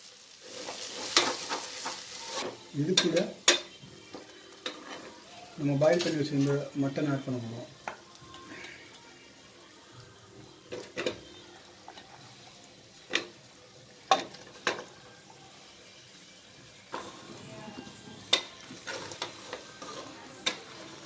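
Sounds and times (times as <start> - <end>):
meat sizzling in pot: 0.0 - 21.0
wooden spoon scraping pot: 17.0 - 21.0.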